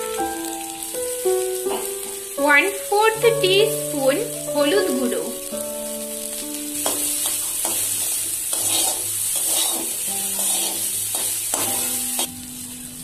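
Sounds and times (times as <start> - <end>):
background music: 0.0 - 7.2
potatoes sizzling in oil: 0.0 - 13.0
metal spatula scraping pan: 6.8 - 12.3.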